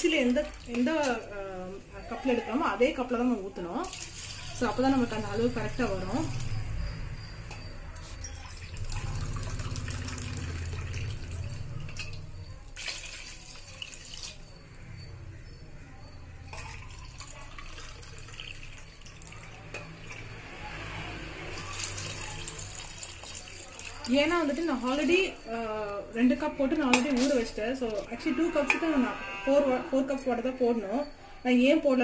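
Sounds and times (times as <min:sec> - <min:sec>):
water pouring into pot: 0:00.0 - 0:00.9, 0:03.8 - 0:06.5, 0:08.2 - 0:14.5, 0:16.5 - 0:20.4, 0:21.4 - 0:25.3.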